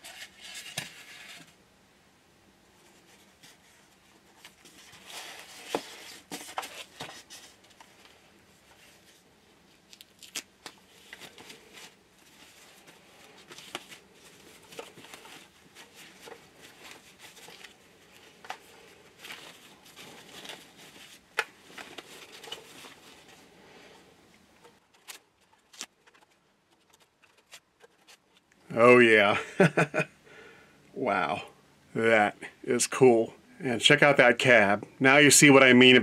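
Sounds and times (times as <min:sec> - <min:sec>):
packaging rustling and crinkling: 0:03.1 - 0:24.0, 0:24.6 - 0:28.5.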